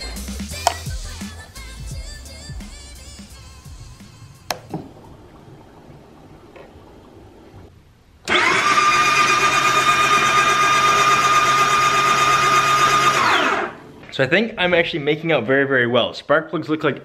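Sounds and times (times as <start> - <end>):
handlebar switch clicks: 0.6 - 0.9, 4.5 - 4.8
snowmobile engine whining: 8.3 - 13.8.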